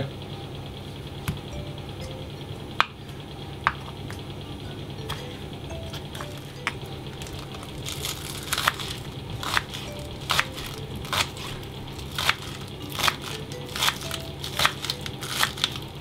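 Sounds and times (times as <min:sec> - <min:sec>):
knife chopping on wooden board: 0:08.5 - 0:15.6.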